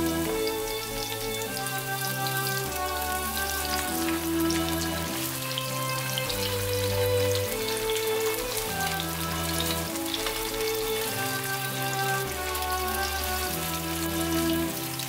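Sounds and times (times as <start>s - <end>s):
background music: 0.0s - 15.0s
patties sizzling in frying pan: 0.0s - 15.0s.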